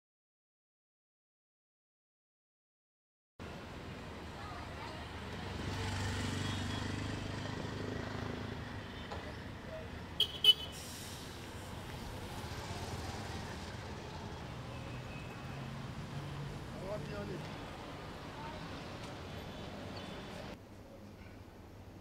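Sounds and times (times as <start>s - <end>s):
vehicle passing with low rumble: 11.1s - 19.0s.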